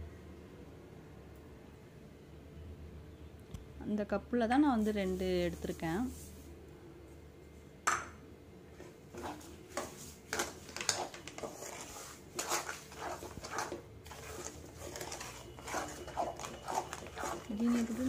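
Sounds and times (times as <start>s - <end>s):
spatula scraping metal pan: 8.8s - 18.0s.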